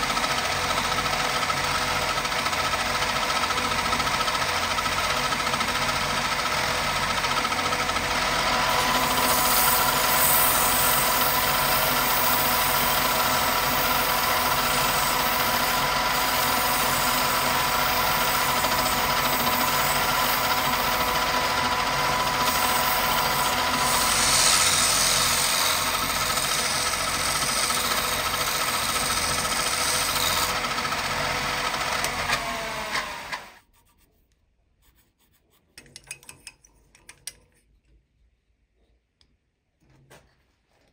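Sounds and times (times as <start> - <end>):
wood lathe motor whining: 0.0 - 33.6
chisel cutting wood: 8.5 - 33.6
sandpaper rubbing spinning wood: 8.8 - 30.6.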